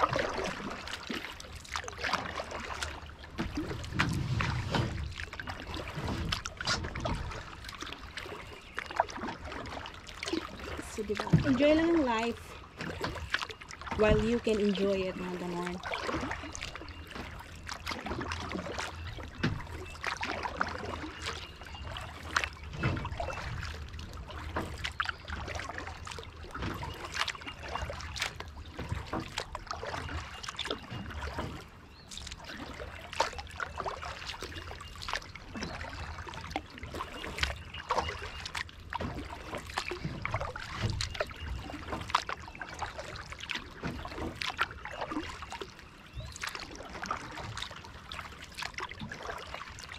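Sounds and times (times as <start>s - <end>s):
paddle splashing in water: 0.0s - 49.9s
water dripping off paddle: 0.0s - 49.9s
low rumble: 3.6s - 5.4s.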